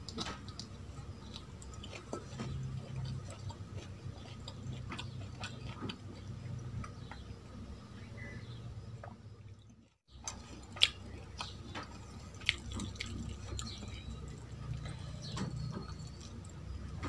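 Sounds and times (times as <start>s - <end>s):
chewing mouth clicks and smacks: 0.0s - 7.2s, 10.2s - 17.0s
fingers mixing food on steel plate: 0.0s - 7.2s.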